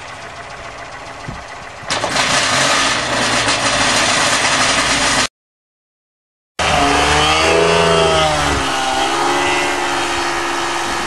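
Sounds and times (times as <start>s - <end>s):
small plane engine and propeller: 0.0s - 5.3s, 6.6s - 11.0s.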